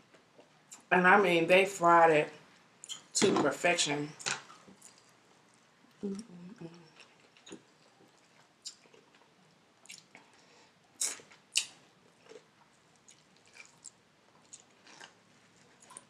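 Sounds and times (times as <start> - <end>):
chewing mouth sounds: 6.2 - 10.3, 11.0 - 16.0
crunching fried chicken: 11.0 - 16.0.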